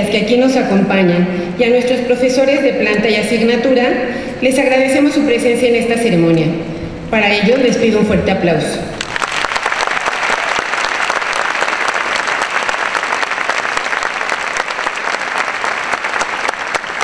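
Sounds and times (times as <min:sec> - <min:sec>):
large audience applauding: 0:09.0 - 0:17.0.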